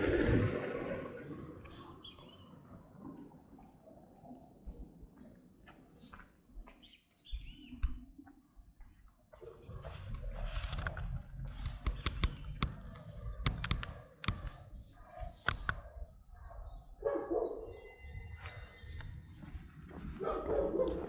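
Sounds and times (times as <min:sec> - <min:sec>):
low rumble: 0:00.0 - 0:02.0
rapid clicks and rustling: 0:10.0 - 0:14.7, 0:15.3 - 0:15.8
dog barking: 0:12.6 - 0:18.0, 0:20.1 - 0:21.0.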